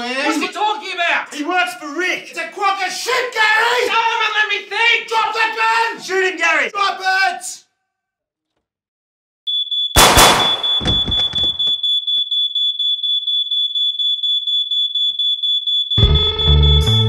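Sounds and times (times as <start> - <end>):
pulsing electronic alarm tone: 9.5 - 17.0
gunshot: 10.0 - 11.6.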